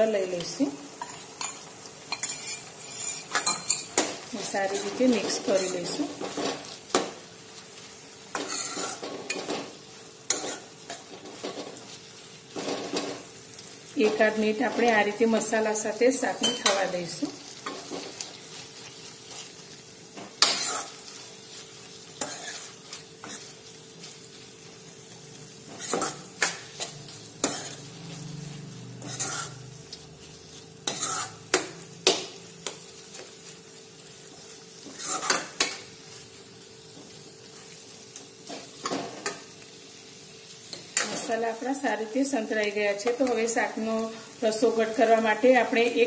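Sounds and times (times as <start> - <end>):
vegetables sizzling in oil: 0.0 - 46.0
spoon clinking and scraping pan: 0.4 - 7.0, 8.3 - 11.8, 16.3 - 16.9, 20.2 - 21.1, 22.2 - 23.5, 25.7 - 27.8, 29.0 - 29.6, 30.8 - 32.8, 34.8 - 35.8.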